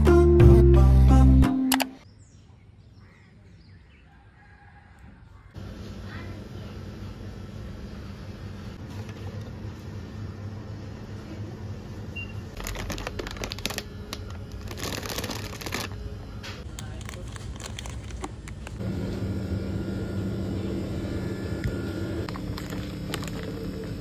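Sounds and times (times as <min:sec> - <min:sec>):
supermarket background hum: 0:00.0 - 0:24.0
plastic snack bag crinkling: 0:12.6 - 0:16.0, 0:16.6 - 0:18.8, 0:22.3 - 0:24.0.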